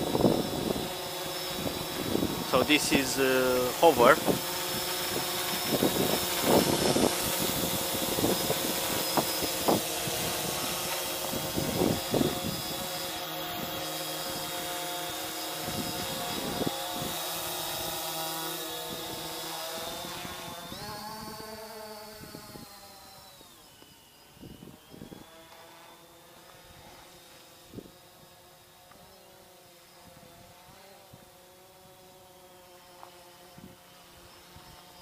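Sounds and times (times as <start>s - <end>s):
wind on microphone: 0.0s - 14.4s, 15.6s - 18.0s, 18.8s - 23.4s, 24.4s - 25.4s
quadcopter motors humming: 0.0s - 35.0s.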